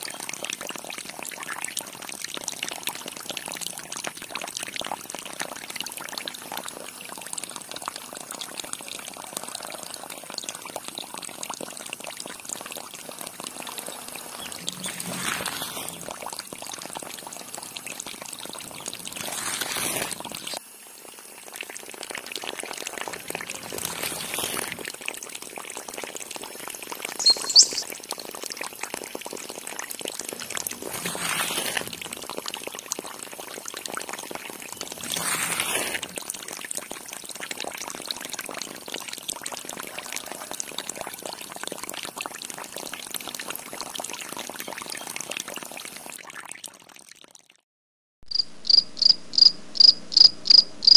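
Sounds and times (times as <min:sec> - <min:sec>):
water trickling into a pool: 0:00.0 - 0:47.7
high chirps: 0:27.2 - 0:27.9.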